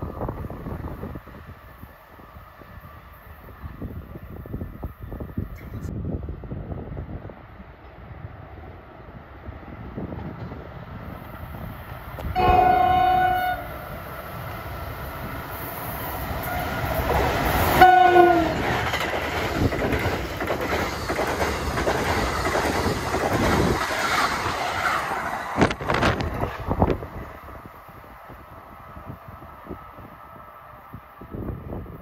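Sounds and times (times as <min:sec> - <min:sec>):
train wheel and rail noise: 0:00.0 - 0:32.0
train horn blasts: 0:12.2 - 0:13.8, 0:16.4 - 0:17.0, 0:17.7 - 0:18.6.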